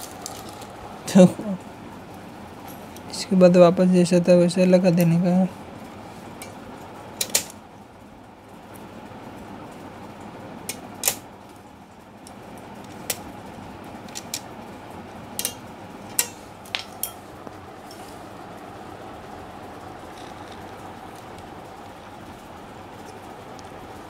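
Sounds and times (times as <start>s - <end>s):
steady background hiss: 0.0s - 24.0s
small parts clicking and tapping: 15.4s - 18.0s.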